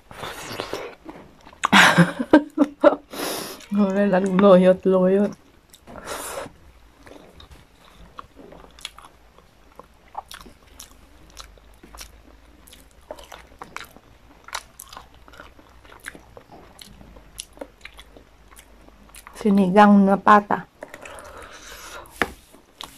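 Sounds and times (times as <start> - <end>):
person chewing and biting: 0.1 - 1.8, 7.0 - 19.4, 20.8 - 22.9.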